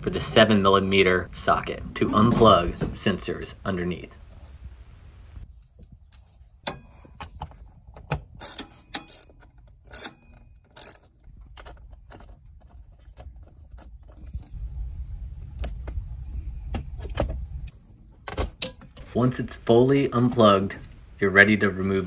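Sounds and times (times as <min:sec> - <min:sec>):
metal ratchet clicks and clinks: 0:08.4 - 0:11.1
low rumble: 0:14.5 - 0:18.0.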